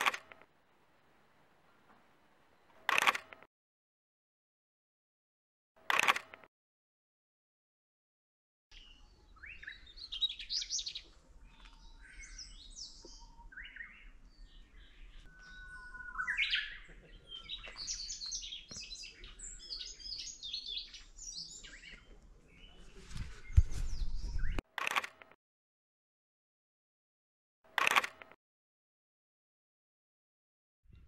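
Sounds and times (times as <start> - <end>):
wild birds singing and calling: 8.7 - 24.6.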